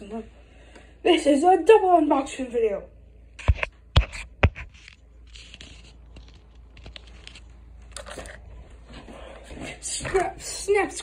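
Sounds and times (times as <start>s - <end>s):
plastic packaging crinkling: 4.7s - 8.5s.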